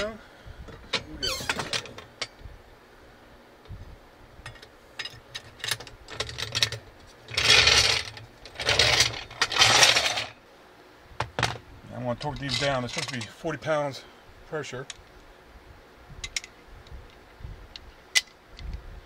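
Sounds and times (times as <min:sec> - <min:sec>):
jack rolling and scraping on asphalt: 0:05.5 - 0:10.4.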